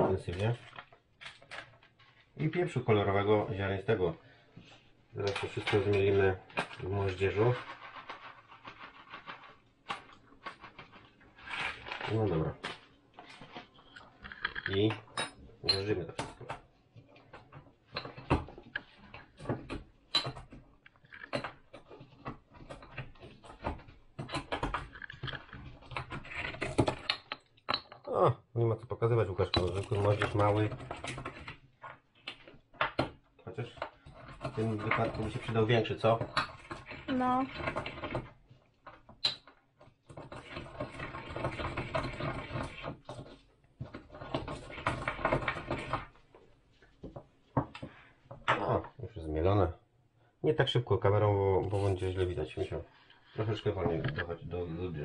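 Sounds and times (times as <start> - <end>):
pestle crushing spices in mortar: 32.3 - 46.1
pestle grinding spices in mortar: 40.1 - 46.1.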